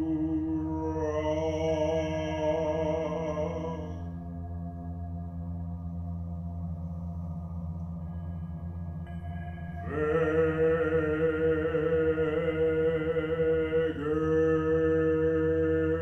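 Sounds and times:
person chanting a held note: 0.0 - 4.1, 9.8 - 16.0
low ambient music drone: 0.0 - 16.0.

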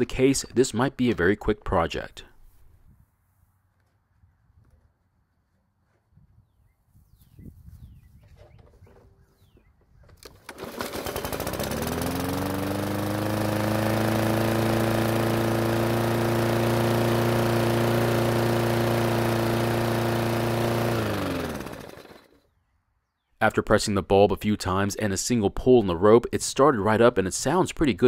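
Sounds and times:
lawn mower engine running: 10.2 - 22.4.

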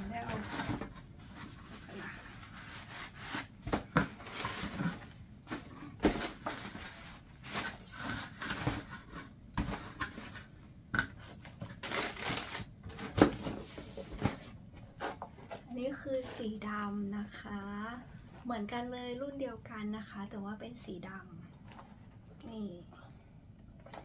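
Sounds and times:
packaging rustling and crinkling: 0.0 - 10.6, 11.2 - 16.8.

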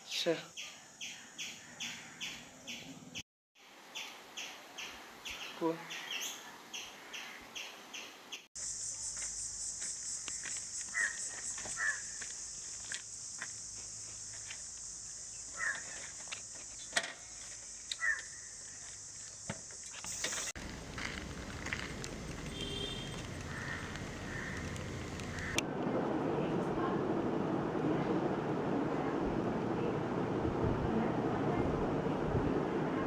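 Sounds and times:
high insect drone: 8.6 - 25.2.

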